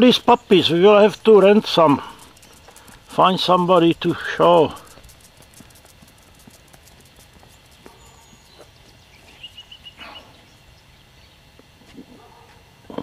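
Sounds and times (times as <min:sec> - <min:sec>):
footsteps on asphalt: 0:00.1 - 0:09.8.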